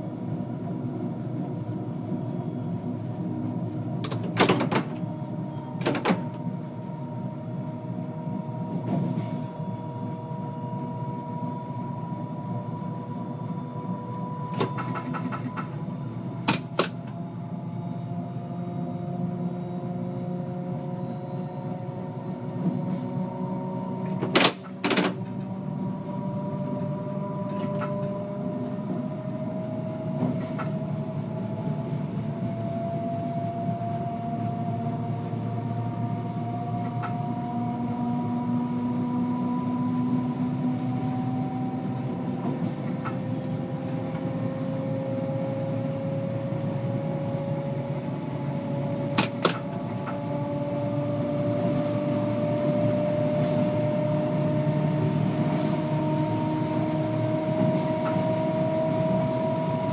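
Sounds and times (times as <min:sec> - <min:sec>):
train rumble: 0:00.0 - 0:59.9
traction motor whine: 0:01.8 - 0:59.9.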